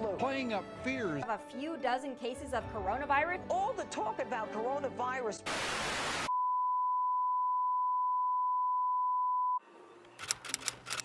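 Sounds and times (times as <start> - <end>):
television test tone beep: 6.3 - 9.6
typewriter key clicks: 10.1 - 11.0.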